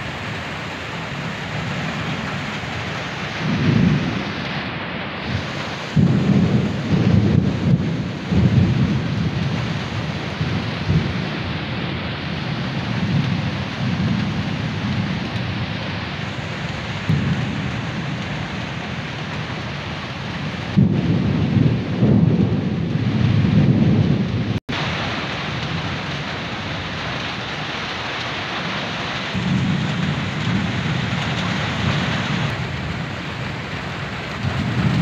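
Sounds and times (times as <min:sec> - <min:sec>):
heavy rain on tin roof: 0:00.0 - 0:35.0.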